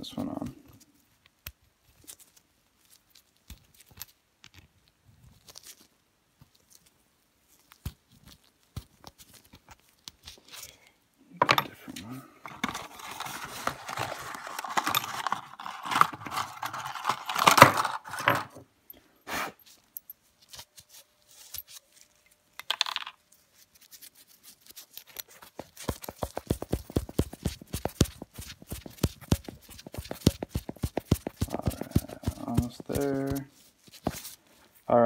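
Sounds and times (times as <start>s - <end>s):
metal parts rustling and clinking: 11.4s - 18.6s, 21.3s - 23.2s, 24.6s - 27.4s.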